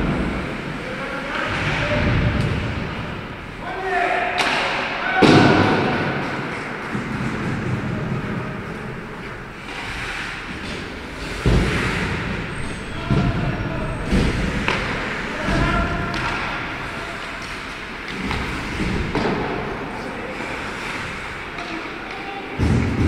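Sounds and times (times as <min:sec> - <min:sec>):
players calling out: 0:12.3 - 0:18.1
hockey sticks and puck knocking: 0:14.0 - 0:19.9.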